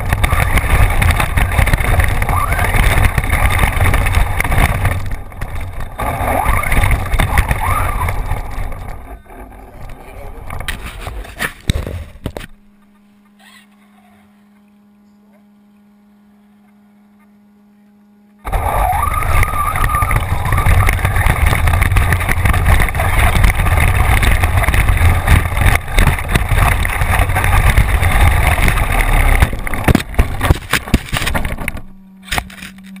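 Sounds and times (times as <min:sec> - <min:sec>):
wind on camera: 0:00.0 - 0:12.3, 0:18.5 - 0:31.9
chassis rattle: 0:00.0 - 0:13.0, 0:18.4 - 0:33.0
tyres on gravel: 0:00.0 - 0:13.6, 0:18.4 - 0:33.0
electric motor whine: 0:00.0 - 0:33.0
faint steady hum: 0:00.0 - 0:33.0.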